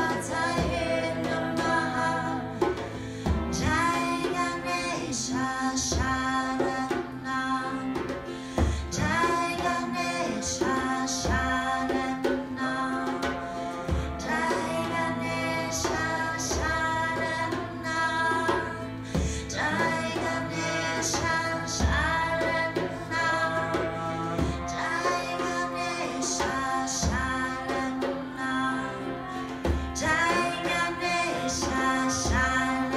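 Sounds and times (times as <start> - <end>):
woman singing a chant: 0.0 - 8.1, 8.7 - 32.9
frame drum beats: 0.0 - 32.9
harmonium drone: 0.0 - 32.9.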